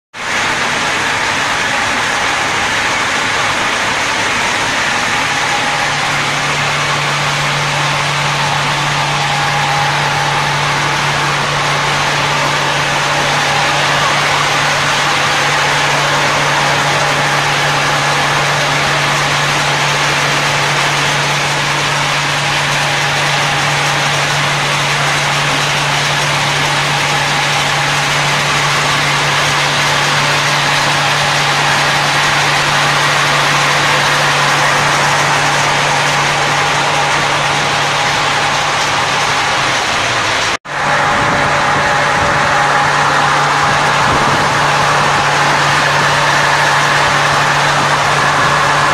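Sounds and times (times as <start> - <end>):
machinery low hum: 0.2 - 48.9
mechanical whir: 0.2 - 48.9.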